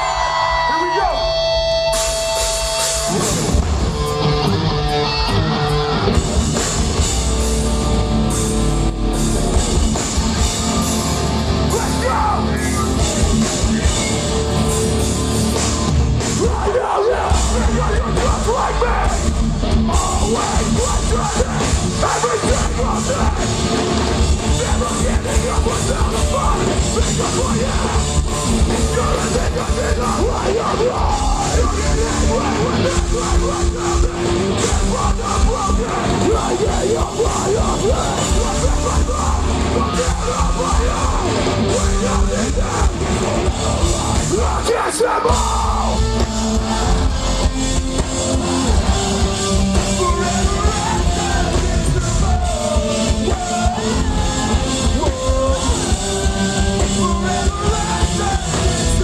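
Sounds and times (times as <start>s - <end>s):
shouted vocals: 0.0s - 1.6s, 10.5s - 13.9s, 16.3s - 47.5s, 48.2s - 59.0s
distorted electric guitars: 0.0s - 59.0s
live hardcore band playing: 0.0s - 59.0s.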